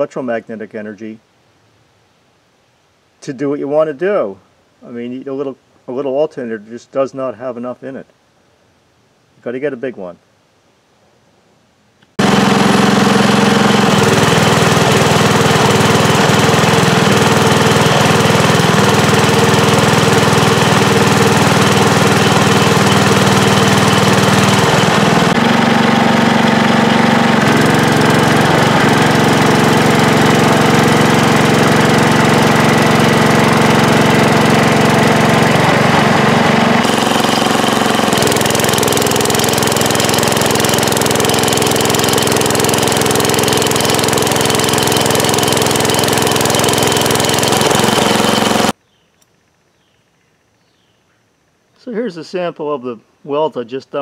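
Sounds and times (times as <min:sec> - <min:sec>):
small gasoline engine under load: 0:12.2 - 0:48.8.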